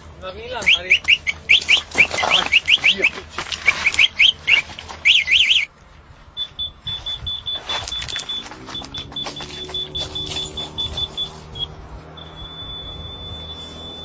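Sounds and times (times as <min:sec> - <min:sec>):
bird chirping: 0:00.6 - 0:05.7
faint high pulsed beeping: 0:06.4 - 0:14.0.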